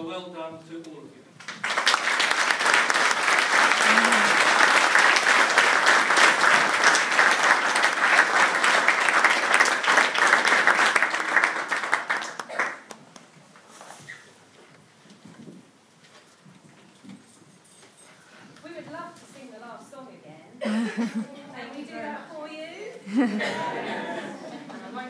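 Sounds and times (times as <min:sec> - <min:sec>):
audience applauding: 0:01.4 - 0:13.3.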